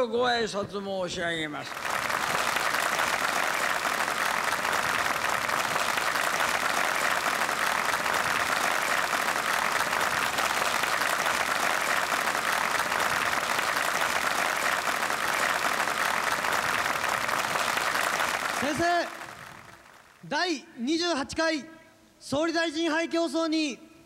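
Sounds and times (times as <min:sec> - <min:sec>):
large crowd applauding: 0:01.6 - 0:20.2.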